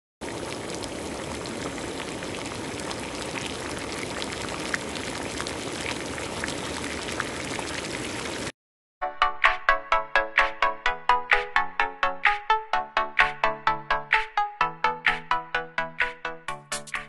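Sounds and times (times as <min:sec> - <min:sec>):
pot simmering with bubbling pops: 0:00.2 - 0:08.5.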